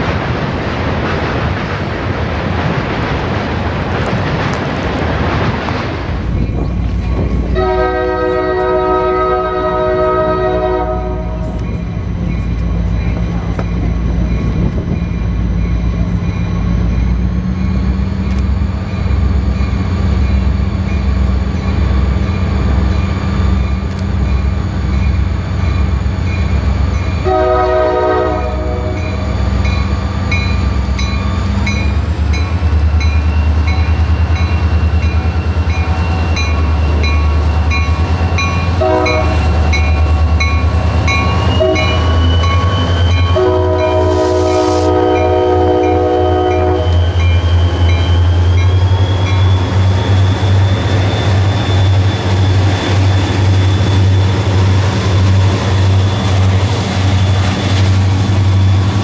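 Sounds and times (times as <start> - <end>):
locomotive engines droning: 0.0 - 59.0
train air horn blasts: 7.5 - 11.6, 27.2 - 29.1, 38.8 - 39.5, 41.5 - 42.2, 43.3 - 47.0.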